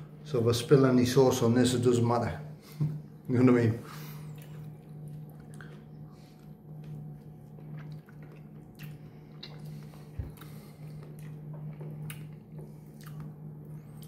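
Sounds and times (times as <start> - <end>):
low hum: 0.0 - 14.0
person chewing: 4.2 - 14.0.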